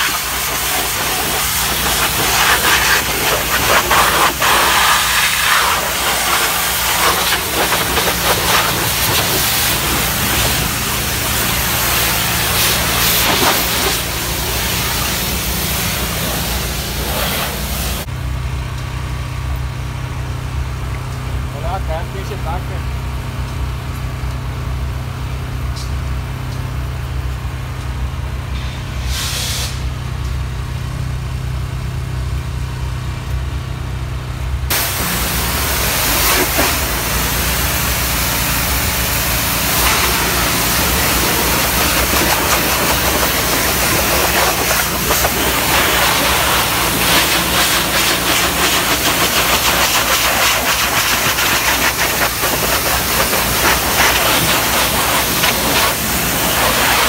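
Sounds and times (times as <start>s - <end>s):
pressure washer spray hissing: 0.0s - 18.1s, 28.6s - 29.8s, 34.7s - 57.0s
engine humming: 0.0s - 28.5s, 30.0s - 57.0s.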